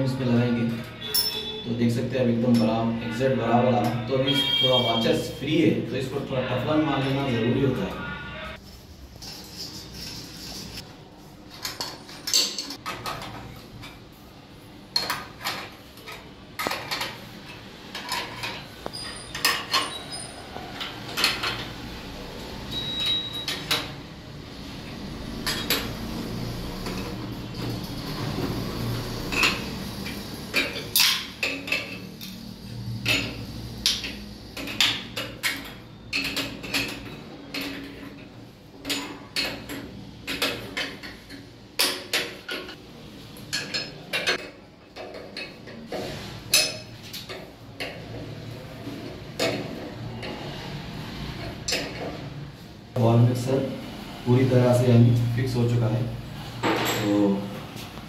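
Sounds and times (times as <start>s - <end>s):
metal plumbing fittings clinking: 11.6s - 14.0s, 29.3s - 32.4s, 33.0s - 38.2s.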